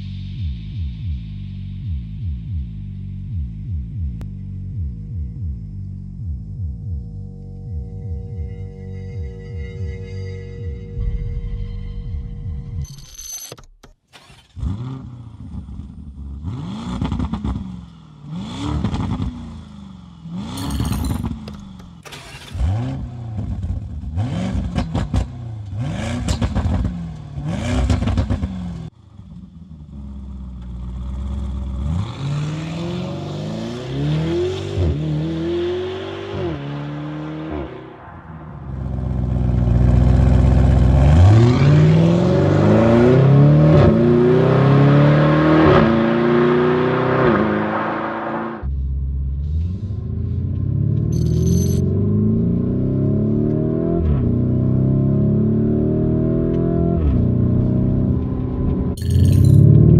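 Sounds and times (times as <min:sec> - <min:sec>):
car engine revving: 0:14.1 - 0:59.9
car accelerating through upshifts: 0:21.2 - 0:28.9, 0:30.0 - 0:38.0, 0:38.8 - 0:48.7, 0:51.8 - 0:59.0.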